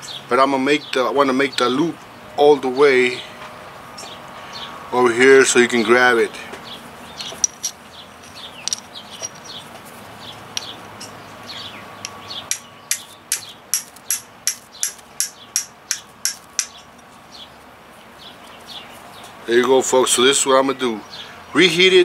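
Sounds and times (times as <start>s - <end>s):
birds chirping: 0.0s - 22.0s
steel striking flint clicks: 8.6s - 9.5s, 12.0s - 16.9s.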